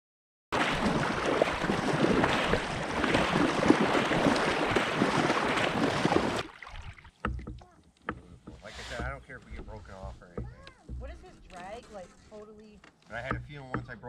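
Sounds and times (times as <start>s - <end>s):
kayak paddle splashing in water: 0.5s - 7.8s
wind buffeting microphone: 0.6s - 6.4s.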